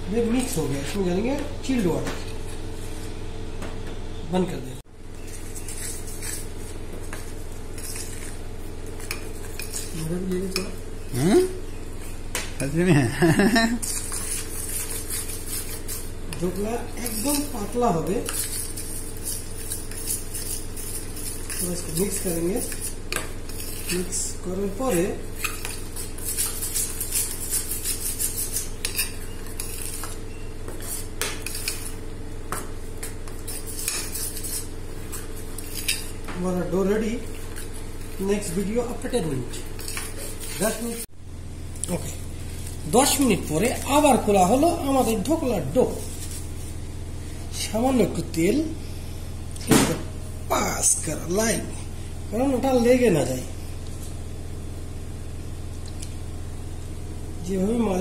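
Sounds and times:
steady low hum: 0.0s - 58.0s
spoon clinking and scraping bowl: 9.0s - 10.8s, 24.8s - 32.0s
metal spoon scraping a steel bowl: 9.0s - 11.2s, 13.8s - 32.0s, 33.0s - 36.2s.

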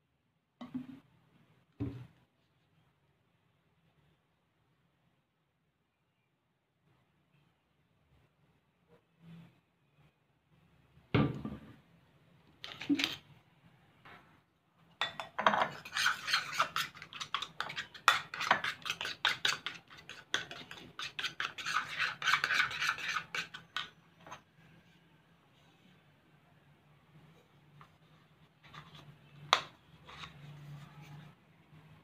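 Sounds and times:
spoon scraping and clinking bowl: 15.0s - 24.4s.

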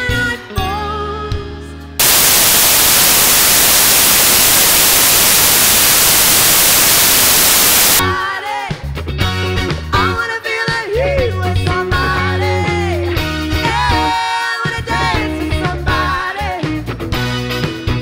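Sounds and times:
loud static hiss: 2.0s - 8.0s.

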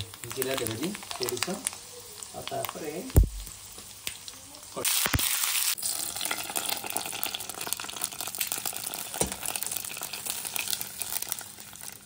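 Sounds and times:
spices sizzling in hot oil: 0.0s - 12.0s.

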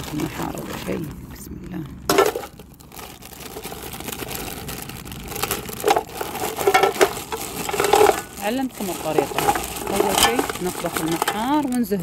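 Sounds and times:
plastic bag crinkling: 0.0s - 1.4s, 2.0s - 12.0s
shells clattering on metal pot: 5.8s - 11.9s.

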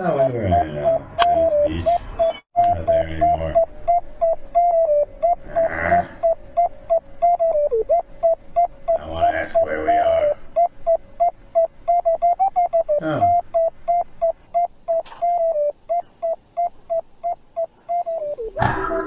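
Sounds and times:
rapid electronic beeps: 0.0s - 19.0s.

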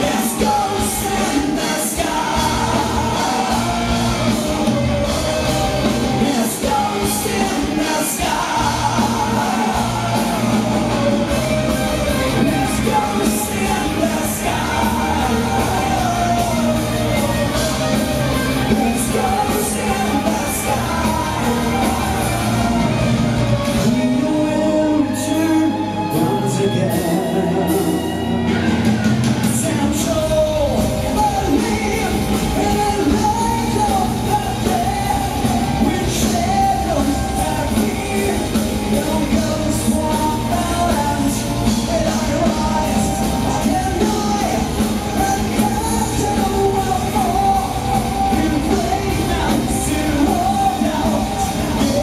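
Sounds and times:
bass guitar: 0.0s - 52.0s
drums: 0.0s - 52.0s
electric guitars: 0.0s - 52.0s
lead vocal singing: 0.0s - 52.0s.

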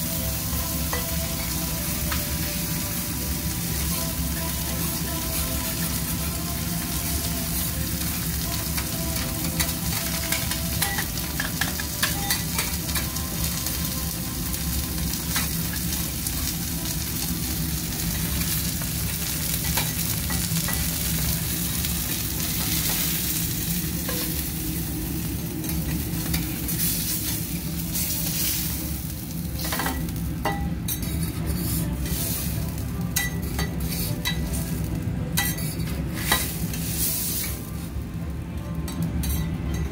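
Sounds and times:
meat sizzling on griddle: 0.0s - 38.1s.

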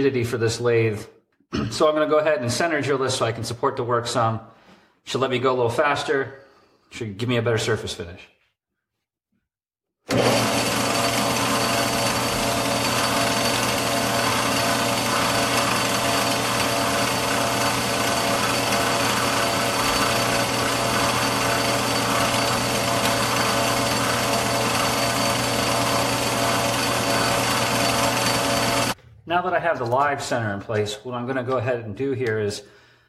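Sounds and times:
high drilling whine: 10.1s - 29.0s
metal lathe running: 10.1s - 29.0s.

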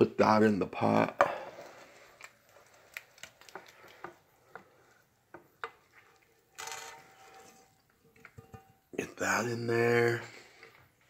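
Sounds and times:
spatula scraping frying pan: 1.4s - 2.9s, 3.5s - 8.8s.

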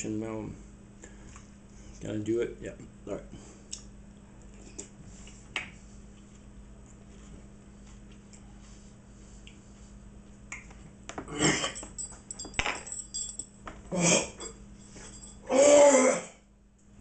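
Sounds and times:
man choking and coughing: 11.3s - 11.8s
man gagging: 13.9s - 14.4s.

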